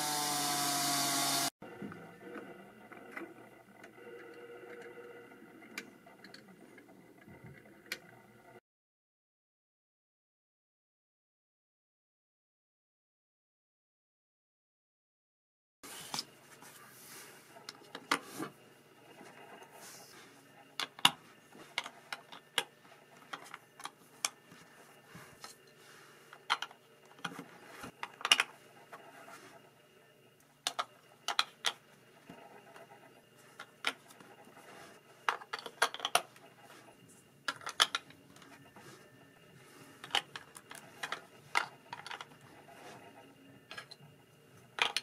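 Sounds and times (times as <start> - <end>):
faint high whine: 28.6 - 44.8
plastic bricks clicking: 30.6 - 31.8, 35.3 - 36.3, 37.5 - 38.2, 44.8 - 45.0.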